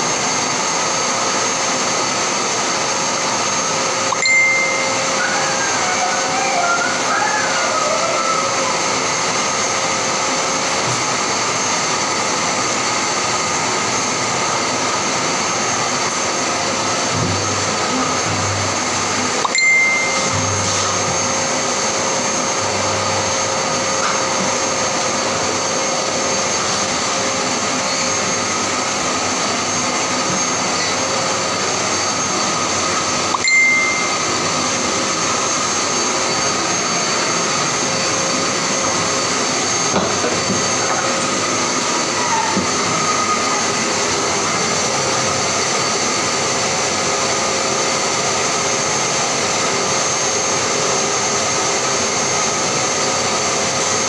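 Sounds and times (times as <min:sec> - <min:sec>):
brief high tones: 0:04.1 - 0:07.1, 0:19.4 - 0:21.3, 0:33.3 - 0:34.5.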